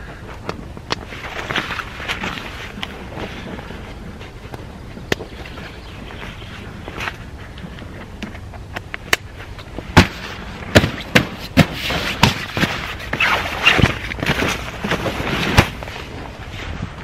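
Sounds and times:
canvas rustling and snapping: 0.4s - 4.3s, 8.8s - 17.0s.

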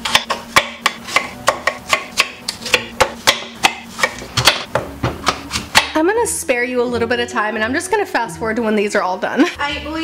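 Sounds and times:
knife chopping on wooden board: 0.0s - 6.0s.

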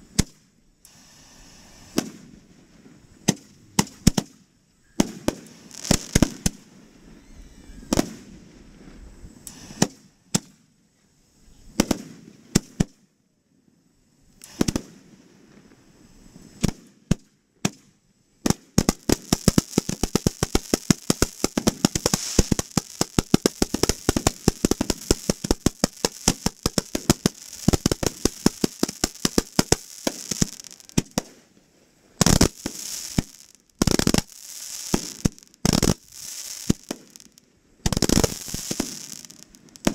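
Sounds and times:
fireworks banging: 5.0s - 6.6s, 18.5s - 31.5s, 32.2s - 39.9s.

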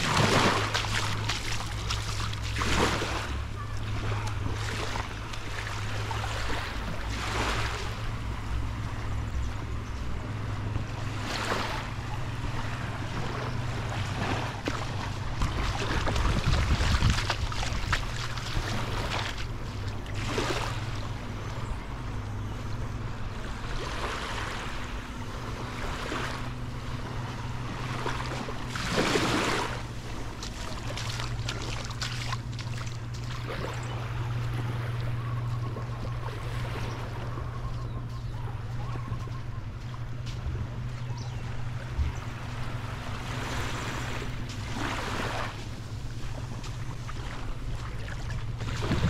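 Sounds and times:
small waves washing onto sand: 0.0s - 9.2s, 10.8s - 21.9s, 23.3s - 38.1s, 39.7s - 49.0s
steady low hum: 0.0s - 49.0s
wind buffeting microphone: 12.3s - 20.1s.

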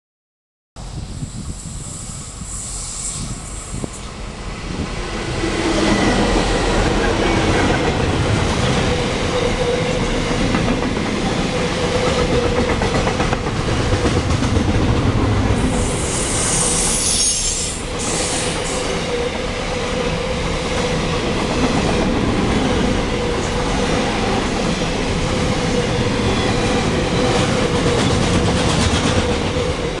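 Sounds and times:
diesel locomotives passing: 0.8s - 30.0s
train wheels on rails: 0.8s - 30.0s
brief high squeal: 1.8s - 3.8s, 15.8s - 19.0s.

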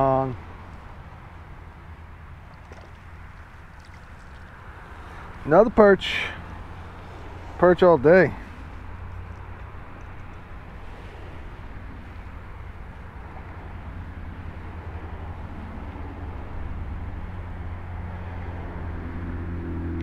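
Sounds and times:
highway traffic rumble: 0.0s - 20.0s
vehicle approaching: 0.0s - 20.0s.

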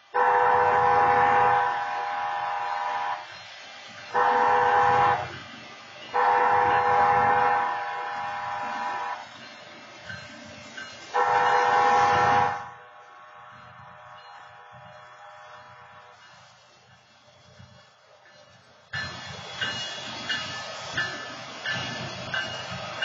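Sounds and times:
train horn blasts: 0.1s - 3.3s, 4.1s - 5.4s, 6.1s - 9.3s, 11.1s - 16.2s.

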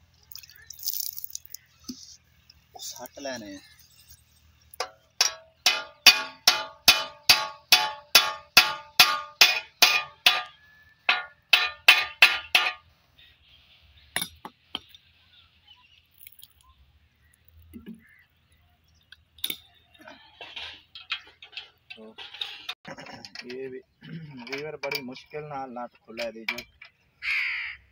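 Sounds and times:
hammer striking steel bolts: 4.8s - 12.8s.

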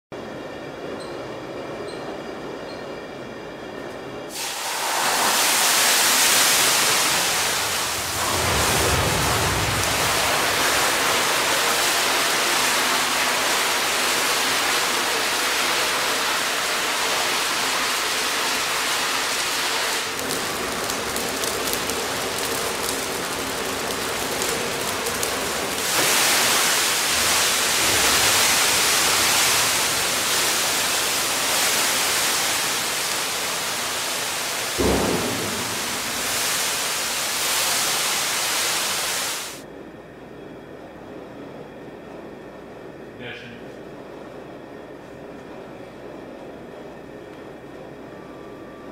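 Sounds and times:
flames burning with rushing roar: 4.3s - 39.6s
hot oil igniting: 4.3s - 39.6s.

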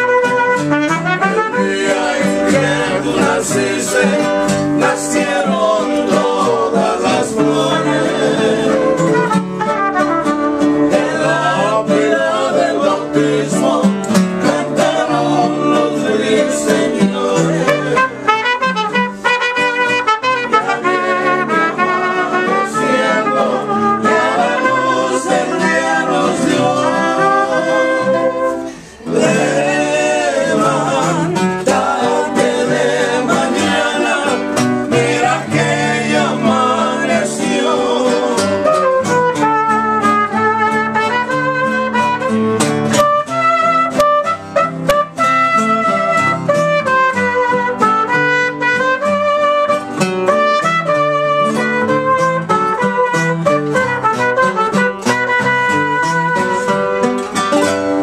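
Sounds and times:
trumpets: 0.0s - 3.3s, 8.8s - 11.6s, 17.6s - 28.9s, 38.6s - 57.2s
guitars: 0.0s - 58.0s
person singing: 1.1s - 9.3s, 10.8s - 18.4s, 20.4s - 39.3s.

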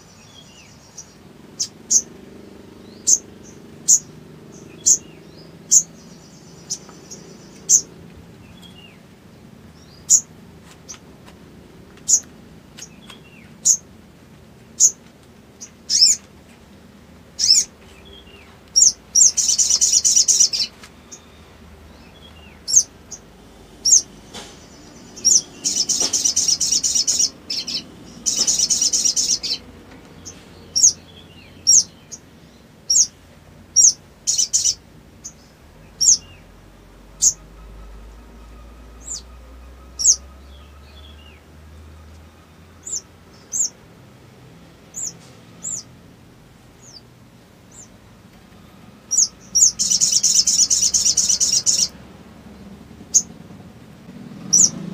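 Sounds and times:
bird chirping: 0.0s - 11.1s, 12.0s - 14.0s, 14.6s - 16.3s, 17.4s - 46.0s, 46.8s - 48.0s, 48.6s - 54.9s
bird rattling trills: 23.8s - 29.6s, 49.1s - 51.9s.

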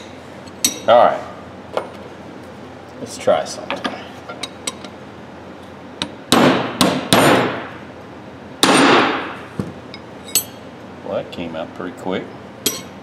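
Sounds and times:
hammer striking steel punch: 6.3s - 7.7s, 8.6s - 9.4s.

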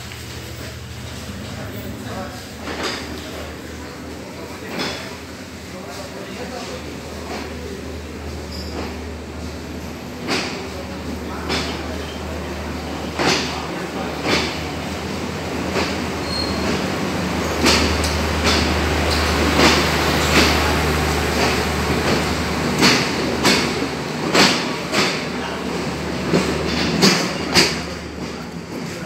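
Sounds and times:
train rumble and engine hum: 0.0s - 29.0s
wheel clacks over rail joints: 0.1s - 5.2s, 10.0s - 12.4s, 13.1s - 14.9s, 15.6s - 29.0s.

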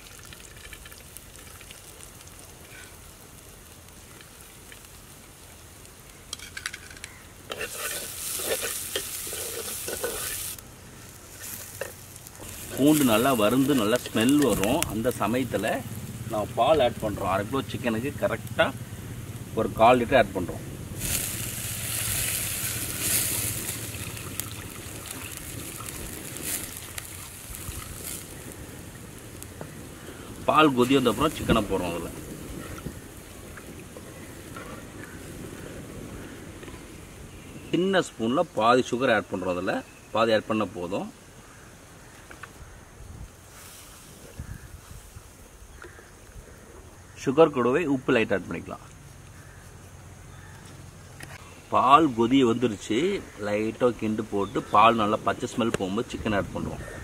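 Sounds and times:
garlic sizzling in ghee: 0.0s - 42.8s, 51.7s - 57.0s
spatula stirring and scraping: 7.5s - 10.6s.

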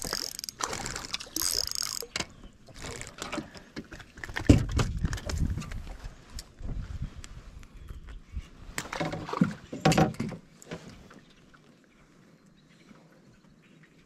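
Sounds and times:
knocks and thump on boat: 3.9s - 5.6s, 8.9s - 11.0s.

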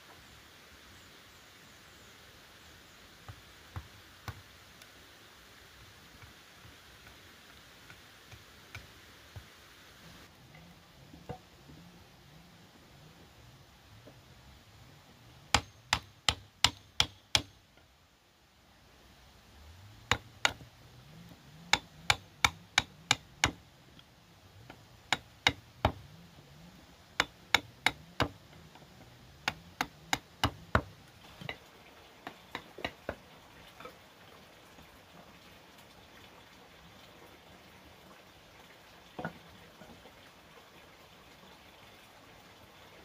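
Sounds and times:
hammer striking chisel into wood: 15.5s - 17.6s, 21.7s - 23.6s, 25.1s - 26.0s, 27.2s - 28.4s.

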